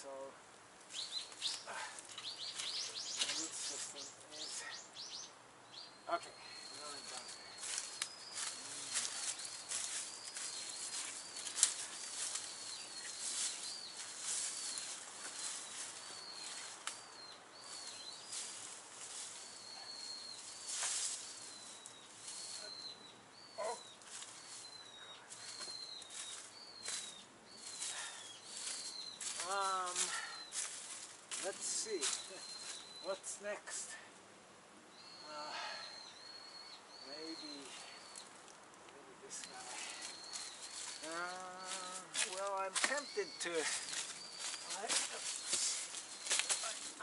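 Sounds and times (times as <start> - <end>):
branches being cut and rustling: 0.8 - 4.0, 6.8 - 22.8, 23.7 - 32.9, 39.4 - 47.0.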